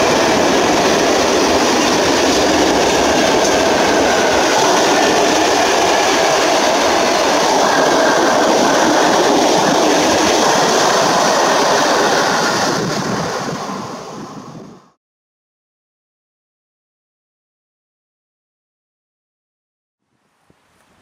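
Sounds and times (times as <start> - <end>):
freight train wheels on rails: 0.0 - 14.9.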